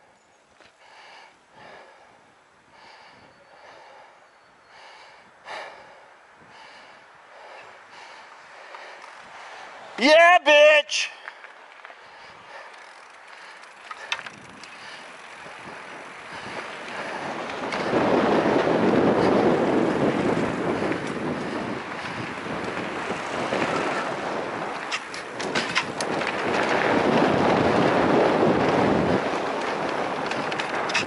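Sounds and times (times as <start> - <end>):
tyres rolling on dirt trail: 0.0 - 31.0
bike clicks and rattles: 8.0 - 9.6, 11.2 - 31.0
wind rushing over microphone: 13.9 - 31.0.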